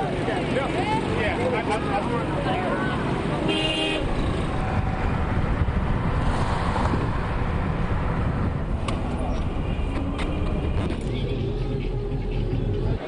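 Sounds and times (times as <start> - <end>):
road traffic rumble: 0.0 - 13.0
wind buffeting microphone: 4.0 - 11.1.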